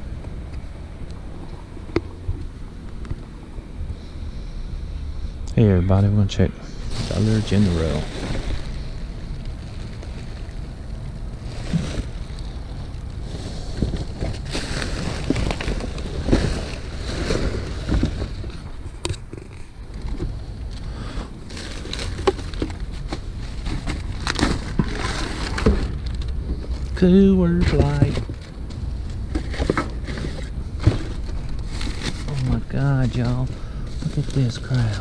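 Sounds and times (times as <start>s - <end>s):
trash rustling in dumpster: 6.8s - 19.0s, 21.4s - 35.0s.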